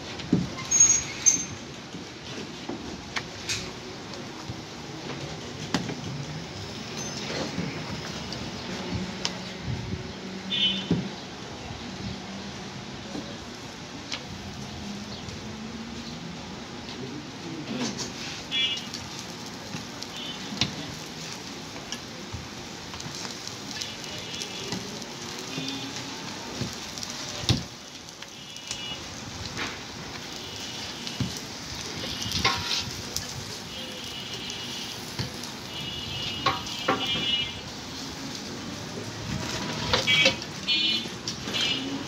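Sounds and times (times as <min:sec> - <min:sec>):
flatbread sizzling in oil: 0:00.1 - 0:12.4, 0:17.8 - 0:42.0
metal spatula scraping griddle: 0:32.1 - 0:33.0, 0:39.1 - 0:40.6.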